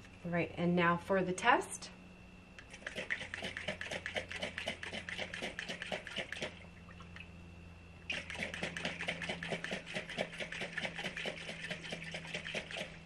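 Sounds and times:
water sloshing in shaken bottle: 0:02.7 - 0:07.4, 0:08.1 - 0:12.9.

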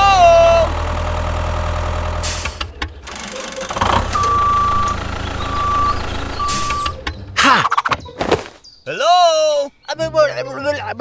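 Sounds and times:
tractor engine humming: 0:00.0 - 0:07.4
reversing alarm beeps: 0:04.0 - 0:07.0.

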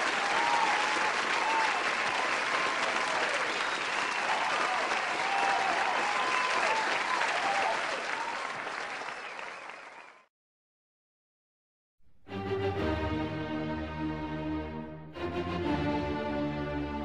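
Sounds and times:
crowd applauding and cheering: 0:00.0 - 0:10.3.

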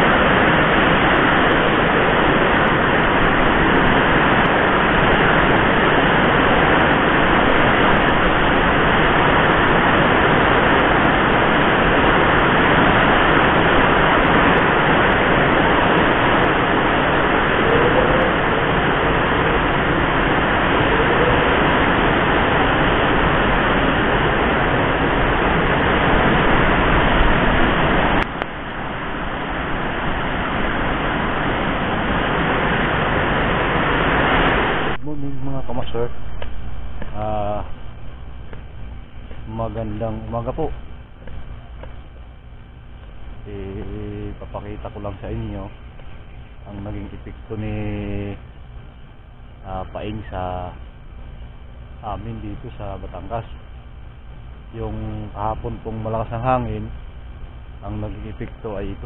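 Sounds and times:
heavy rain: 0:00.0 - 0:47.1
strong wind: 0:00.0 - 0:59.0.

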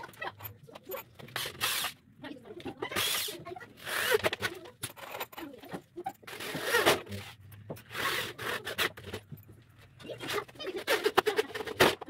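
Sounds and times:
electric drill boring into wood: 0:01.4 - 0:01.9.

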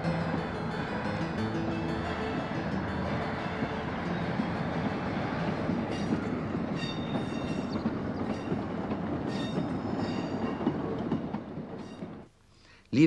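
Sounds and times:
train wheels rumbling on rails: 0:00.0 - 0:12.3
high-pitched wheel squeals: 0:05.9 - 0:08.5.

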